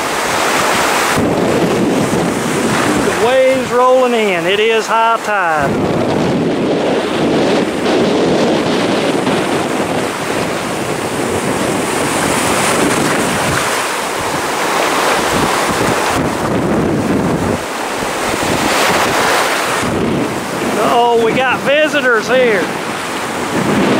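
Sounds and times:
ocean surf breaking: 0.0 - 23.9
wind buffeting microphone: 0.0 - 23.9.

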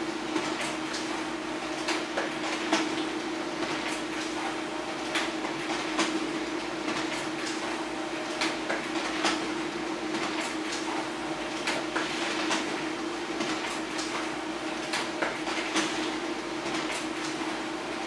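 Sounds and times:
laser printer running: 0.0 - 18.0
paper feed clicks and clacks: 0.3 - 18.0.

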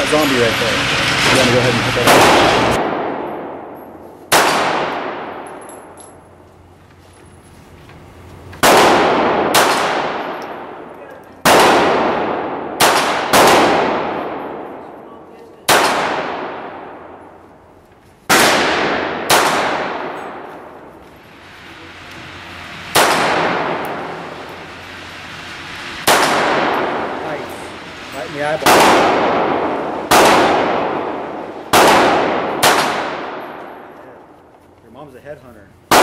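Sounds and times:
pistol shots echoing: 2.0 - 6.0, 8.6 - 15.0, 15.6 - 17.3, 18.3 - 20.5, 22.9 - 24.1, 26.0 - 27.2, 28.6 - 33.9.

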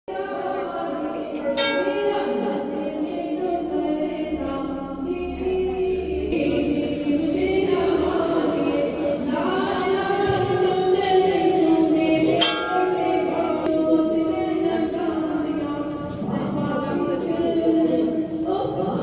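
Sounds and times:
devotional singing: 0.1 - 19.0
temple bell ringing: 0.9 - 6.0, 12.4 - 15.6.

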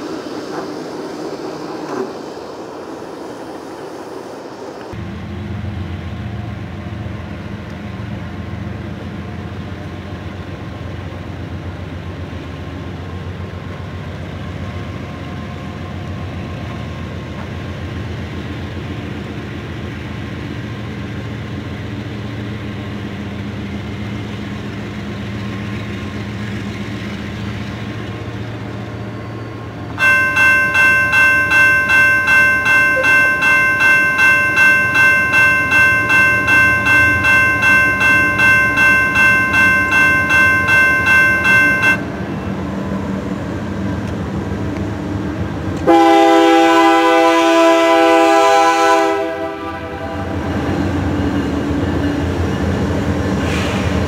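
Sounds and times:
diesel locomotive rumble: 0.0 - 54.0
railroad crossing bell ringing: 29.1 - 42.6.

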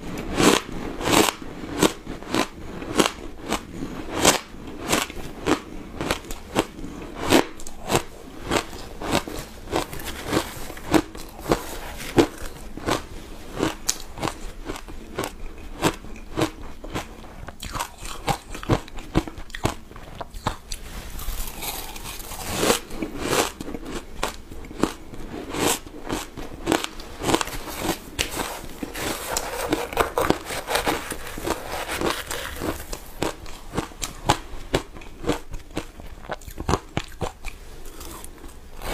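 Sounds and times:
ice being chewed crunching: 0.4 - 38.9.

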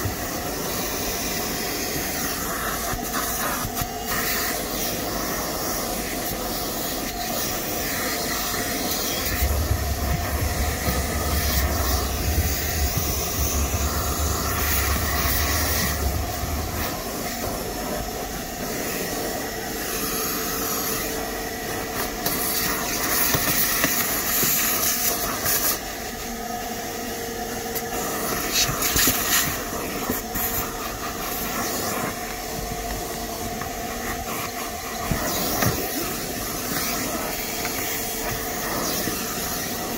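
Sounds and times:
vacuum cleaner running: 0.0 - 39.9
low rumble: 8.9 - 18.5.

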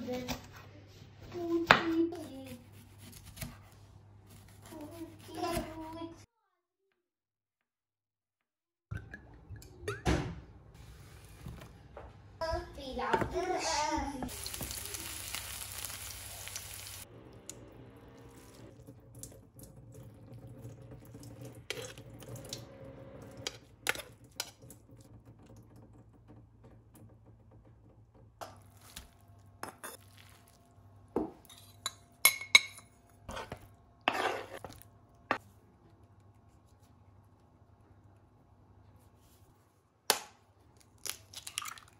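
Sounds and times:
onions sizzling in a pan: 14.2 - 17.1
metal kitchenware clinking: 31.4 - 34.7.

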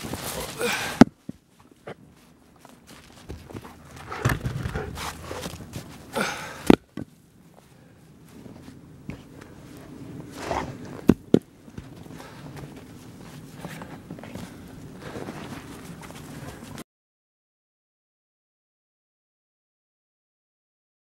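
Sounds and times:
logs rustling: 0.0 - 16.7
footsteps crunching in snow: 0.0 - 16.8.

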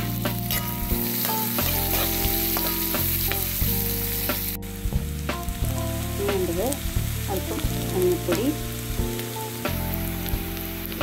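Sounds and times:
vegetables sizzling in hot oil: 0.0 - 11.0
spatula scraping and tapping pan: 0.3 - 3.6.

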